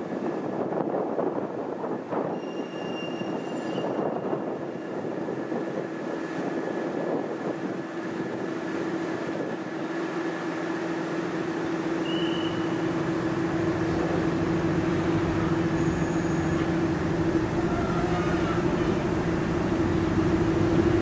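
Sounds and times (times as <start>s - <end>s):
diesel locomotive rumbling: 0.0s - 21.0s
thin high squeal: 2.3s - 4.2s.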